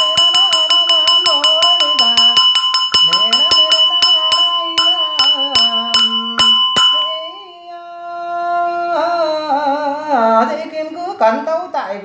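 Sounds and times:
monk chanting: 0.0 - 2.4, 3.0 - 12.0
small bell struck rhythmically: 0.0 - 7.6.

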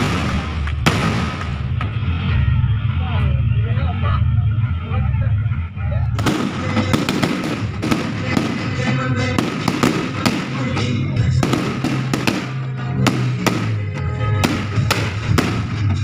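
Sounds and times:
fireworks bangs: 0.0 - 2.0, 6.2 - 16.0
music playing: 0.0 - 16.0.

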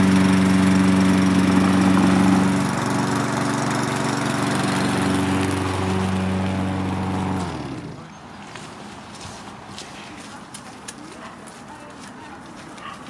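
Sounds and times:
lawn mower engine running: 0.0 - 8.2.

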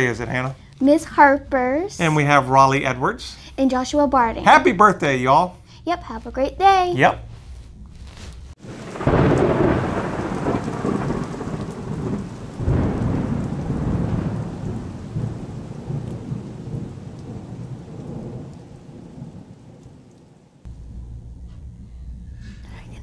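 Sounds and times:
rain: 0.0 - 3.4, 8.1 - 20.7
thunder rumbling: 0.0 - 5.1, 8.6 - 23.0
thunderclap: 8.6 - 21.4.

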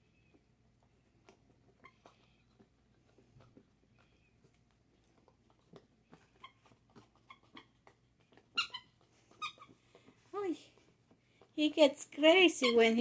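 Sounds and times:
dog toy squeaking: 6.2 - 9.8, 12.4 - 13.0.

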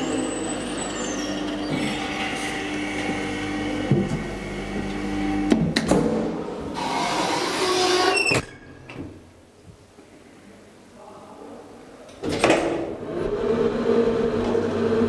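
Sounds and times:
elevator electric hum: 0.0 - 7.9.

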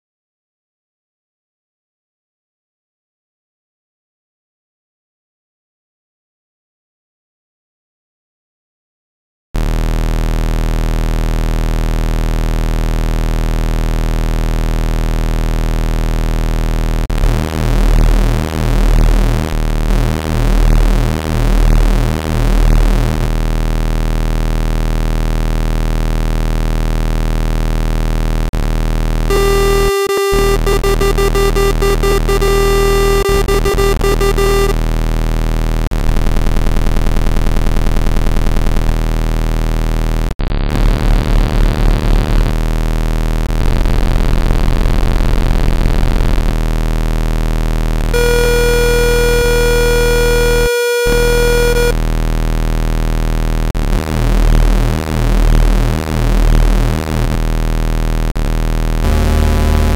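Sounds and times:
loud single tone: 29.3 - 34.8, 48.1 - 52.0.

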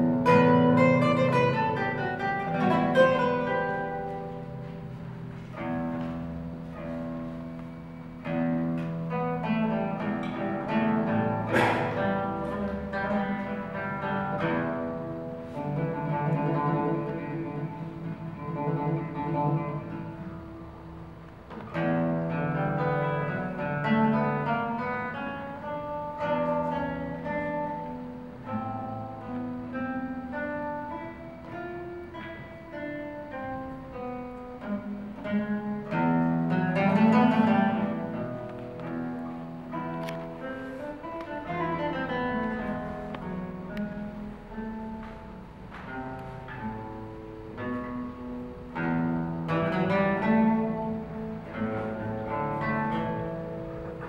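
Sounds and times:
classical guitar fingerstyle: 0.0 - 54.0
loud strummed guitar chord: 9.8 - 20.4.

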